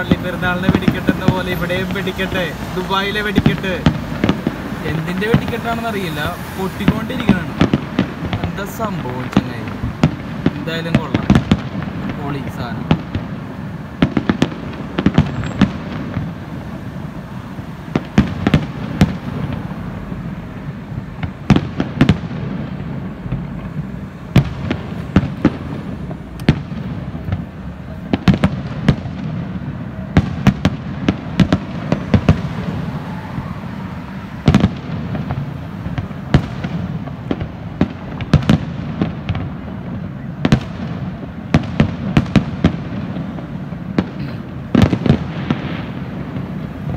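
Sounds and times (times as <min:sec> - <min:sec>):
fireworks bangs: 0:00.0 - 0:46.9.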